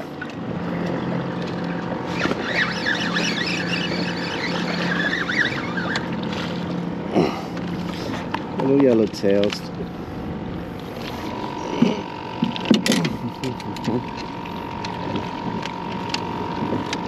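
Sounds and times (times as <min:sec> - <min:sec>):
water sloshing against boat hull: 0:00.0 - 0:17.0
wind on microphone: 0:15.0 - 0:17.0.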